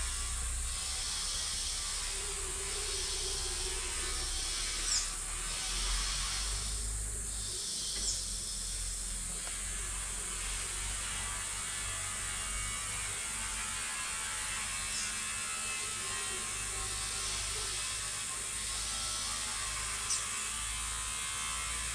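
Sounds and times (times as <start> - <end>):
insects trilling: 0.0 - 21.9.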